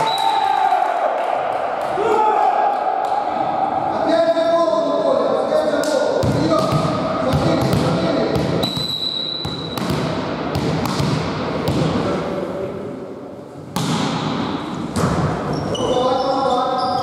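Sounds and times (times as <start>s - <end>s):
shoe squeaks: 8.0s - 9.8s, 15.5s - 17.0s
referee's whistle: 8.6s - 9.8s.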